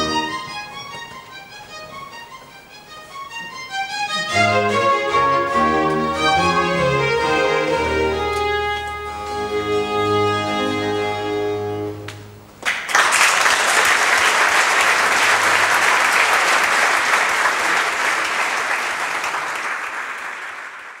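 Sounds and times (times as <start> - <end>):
string orchestra chord: 0.0 - 2.3, 3.6 - 12.5
audience applauding: 12.1 - 21.0.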